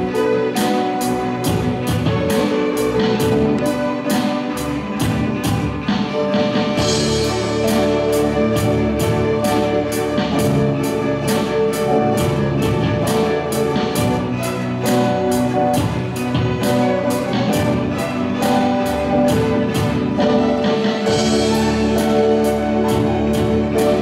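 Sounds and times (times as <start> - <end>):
violins playing: 0.0 - 24.0
electric bass: 1.0 - 3.9, 4.6 - 24.0.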